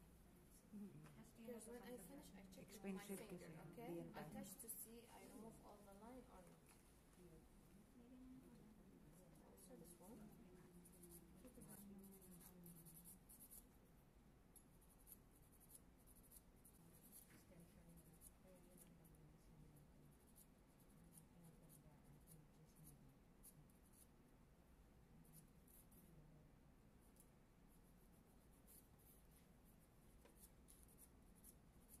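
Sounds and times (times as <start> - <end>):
nail file scratching: 10.0 - 13.7, 14.5 - 19.2, 19.9 - 24.1, 25.2 - 26.1, 27.0 - 32.0.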